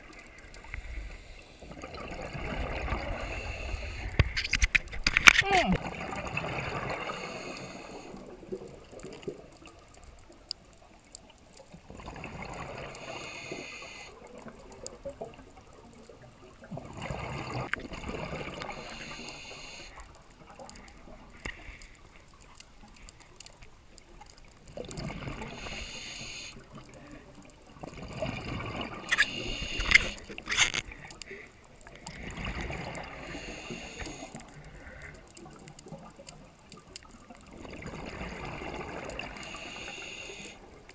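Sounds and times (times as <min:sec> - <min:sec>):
scuba regulator breathing bubbles: 0:00.1 - 0:04.4, 0:05.8 - 0:09.4, 0:11.9 - 0:14.6, 0:16.7 - 0:22.0, 0:24.8 - 0:35.6, 0:37.5 - 0:40.9.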